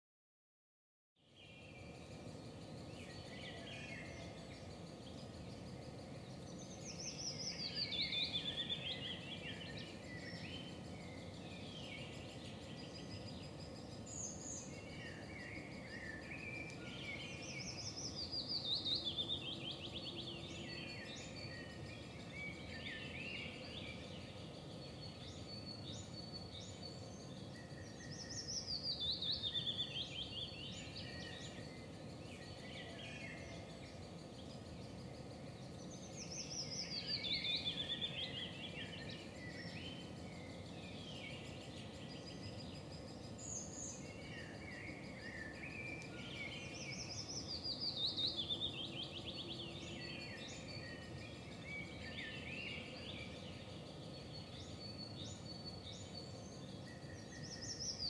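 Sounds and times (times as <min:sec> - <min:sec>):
low outdoor background hum: 0:01.2 - 0:58.0
birds chirping: 0:01.3 - 0:58.0.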